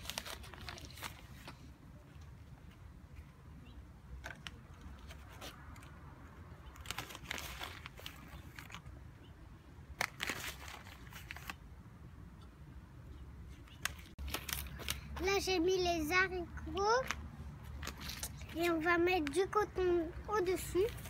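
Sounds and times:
paper seed packet crinkling: 0.0 - 1.8, 4.2 - 9.0, 9.9 - 11.6, 13.8 - 15.2, 17.0 - 18.6.

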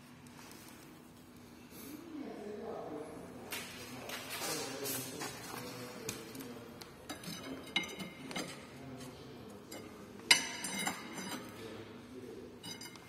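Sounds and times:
metal tool clinking on metal: 7.1 - 8.6, 9.6 - 11.5, 12.6 - 13.0
ringing metal clank: 12.6 - 13.0.

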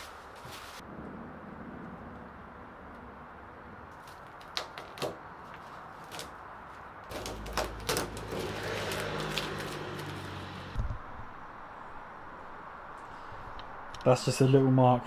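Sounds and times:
tape being peeled off: 3.9 - 6.4, 7.1 - 10.4.

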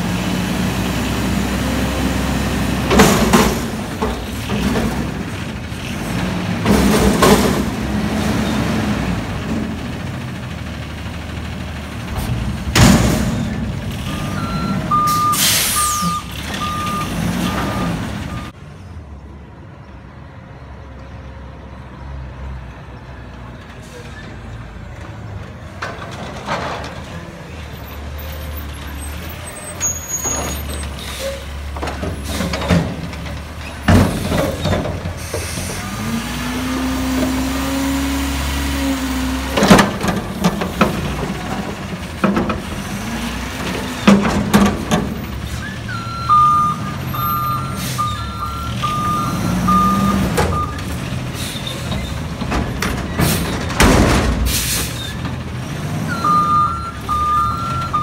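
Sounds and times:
diesel engine revving: 0.0 - 18.6, 27.0 - 58.0
loud metal bangs: 12.1 - 14.1, 51.9 - 55.4
reversing beeps: 14.1 - 18.5, 45.6 - 50.8, 56.1 - 58.0
air brakes hissing: 15.1 - 16.3, 29.8 - 31.5, 35.2 - 35.9, 47.6 - 48.4, 51.3 - 52.2, 54.4 - 55.2.

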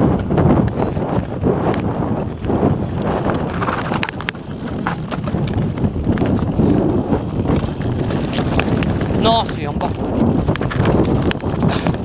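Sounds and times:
bike rattling: 0.0 - 12.0
wind on microphone: 0.0 - 12.0
tyres crunching over stones: 3.1 - 12.0.

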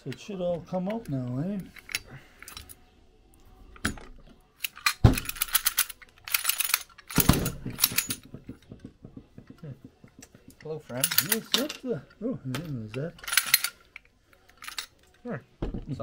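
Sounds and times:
metal parts clinking and rattling: 0.0 - 2.8, 3.7 - 8.4, 10.2 - 15.2.

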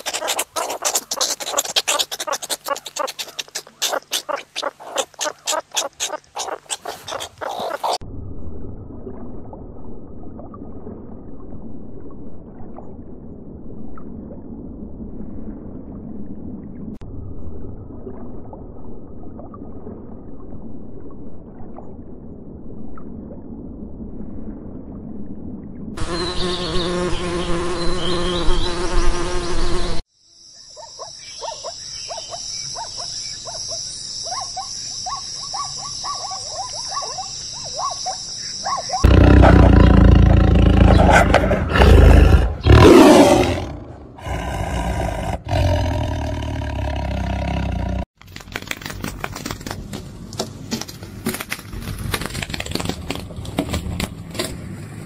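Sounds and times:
high insect calls: 0.0 - 8.0, 26.0 - 42.0
scratching in gravelly soil: 0.0 - 8.0.

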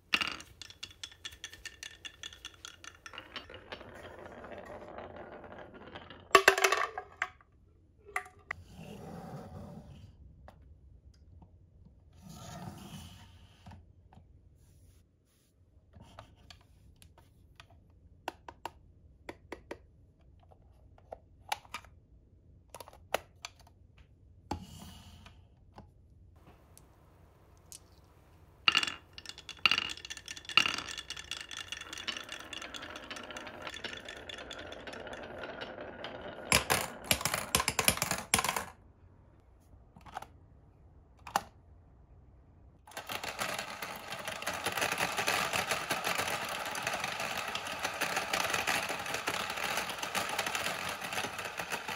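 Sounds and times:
marbles clacking: 0.0 - 7.4, 26.4 - 38.7, 42.9 - 51.9
marbles rattling in spinning tubs: 0.0 - 7.4, 26.4 - 38.7, 42.9 - 51.9
marbles rolling down wooden track: 0.0 - 7.4, 26.4 - 38.8, 42.9 - 51.9.

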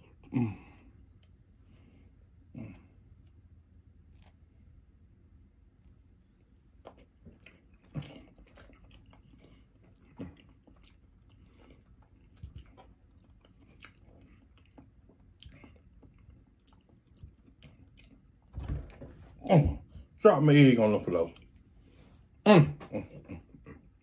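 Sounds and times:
chewing: 6.3 - 18.5, 21.3 - 22.4.

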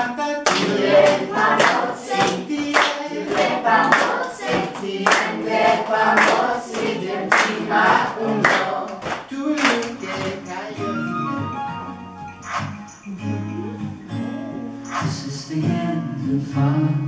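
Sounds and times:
children and adults singing: 0.0 - 10.9
hands clapping: 0.4 - 10.7, 12.4 - 13.1, 14.8 - 15.2.

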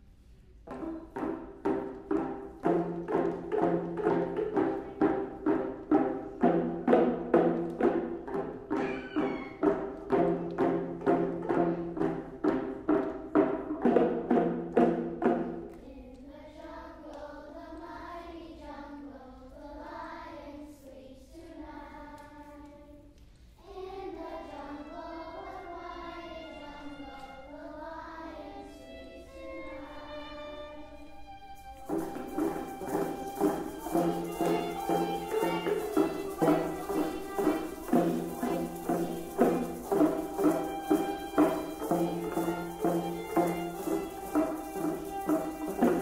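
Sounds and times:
children drumming on hand drums: 0.7 - 15.8, 31.0 - 46.0
violins playing slow melody: 28.6 - 46.0.

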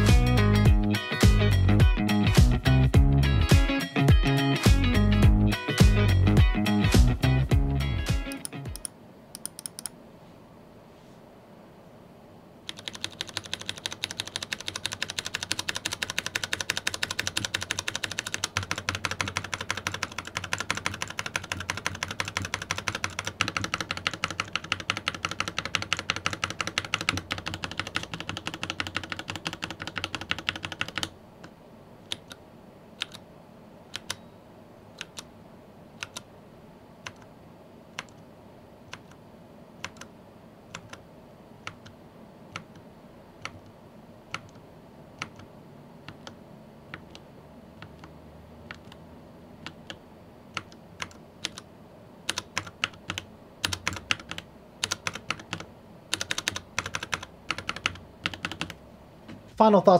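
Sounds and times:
mechanical keyboard key clacking: 12.7 - 31.1.

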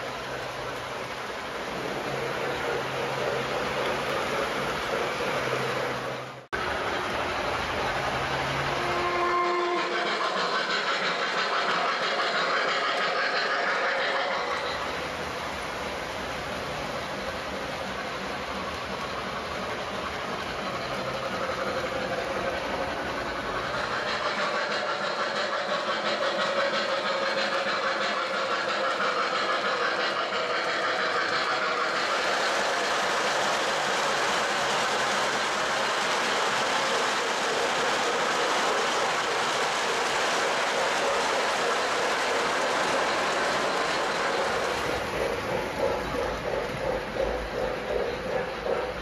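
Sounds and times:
electronic steam sounds: 0.0 - 49.0
model train wheels clicking: 0.0 - 49.0.

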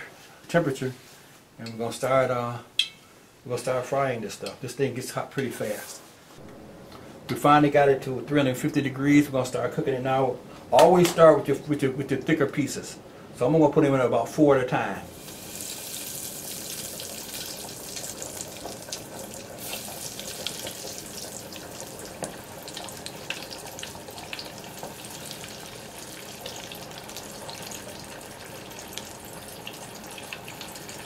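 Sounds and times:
crackles in frying oil: 15.0 - 31.0
deep-frying oil bubbling: 15.1 - 31.0.

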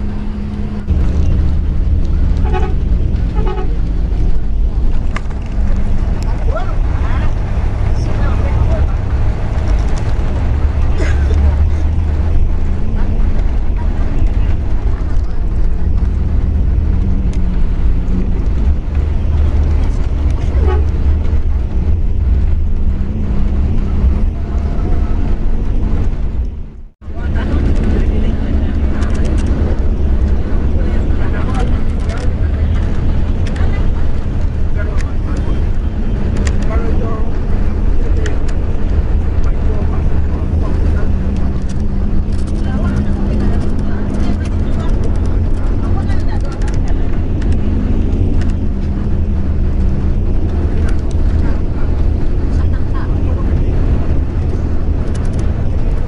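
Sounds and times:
bus engine drone: 0.0 - 56.0
road noise: 0.0 - 56.0
bus horn toots: 2.2 - 4.0, 20.4 - 21.1.

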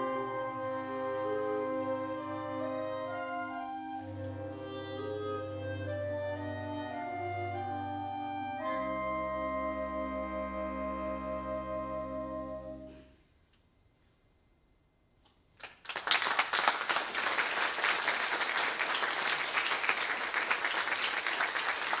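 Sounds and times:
clarinet choir sustained chord: 0.0 - 13.1
audience applause: 15.6 - 22.0.

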